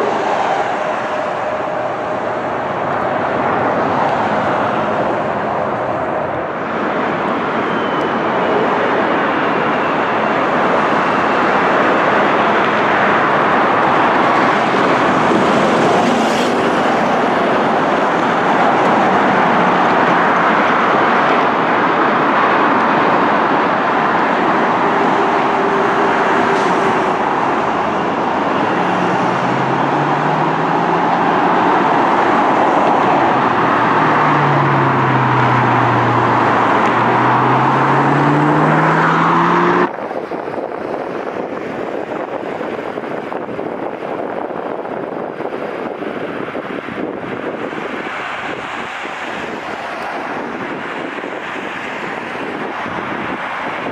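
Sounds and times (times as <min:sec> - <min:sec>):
jet engine roar: 0:00.0 - 0:44.2
low tones sliding in pitch: 0:24.6 - 0:39.9.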